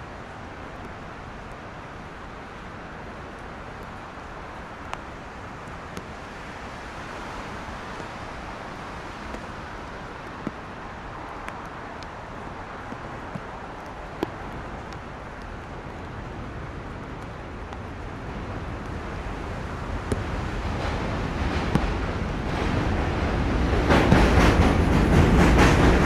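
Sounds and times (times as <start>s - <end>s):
distant highway traffic on wet roads: 0.0s - 26.0s.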